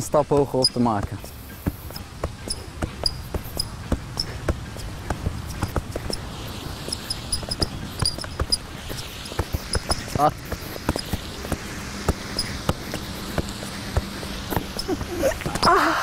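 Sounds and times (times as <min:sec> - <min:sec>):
football bouncing off body: 0:00.3 - 0:06.2.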